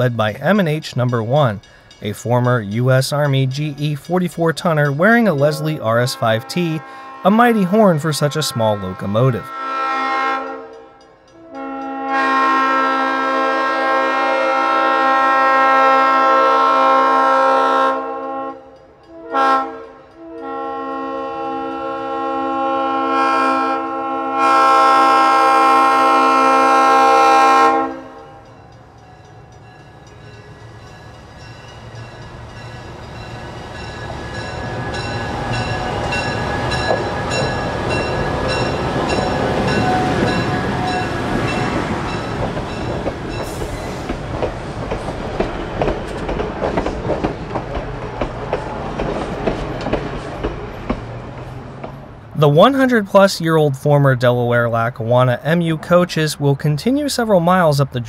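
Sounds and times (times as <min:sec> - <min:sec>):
train rumbling past: 0:00.0 - 0:58.0
locomotive horn blasts: 0:05.4 - 0:28.5, 0:34.4 - 0:41.7
wheels clicking over rail joints: 0:31.9 - 0:52.2.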